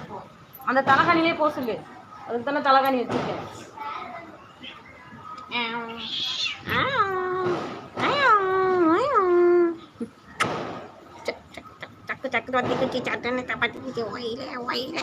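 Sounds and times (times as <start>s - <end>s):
cat meowing: 5.9s - 7.0s.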